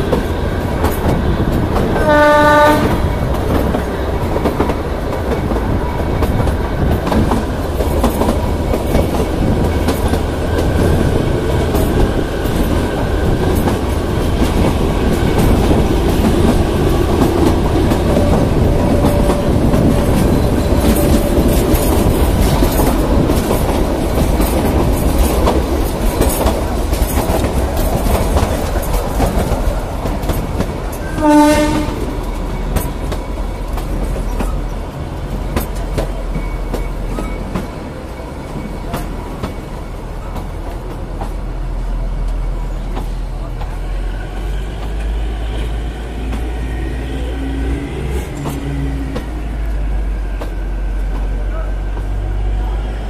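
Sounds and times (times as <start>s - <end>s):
train wheels rumbling and clattering: 0.0s - 53.0s
train horn blast: 2.0s - 3.1s, 31.0s - 32.3s.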